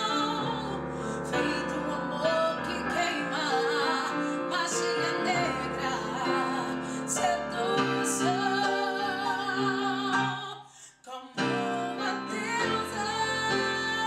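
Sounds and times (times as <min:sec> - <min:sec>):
woman singing: 0:00.0 - 0:14.0.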